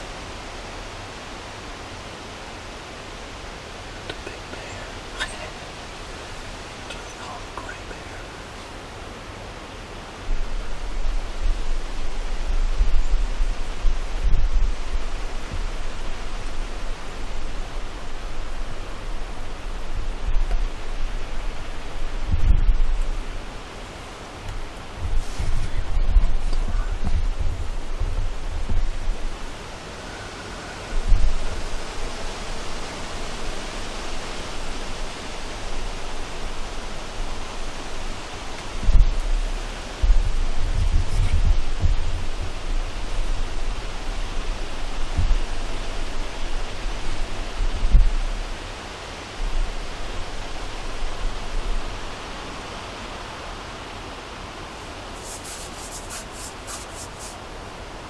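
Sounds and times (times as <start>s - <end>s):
steady hiss: 0.0s - 58.0s
wind rumbling on microphone: 0.0s - 58.0s
low rumble: 38.8s - 43.7s.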